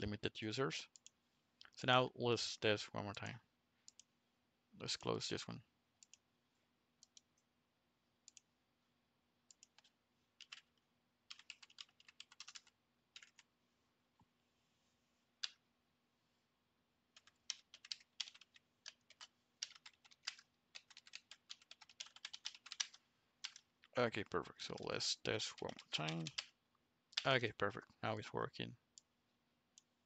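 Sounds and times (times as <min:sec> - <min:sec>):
computer keyboard typing: 0:09.5 - 0:13.5, 0:17.2 - 0:23.7, 0:24.7 - 0:26.5.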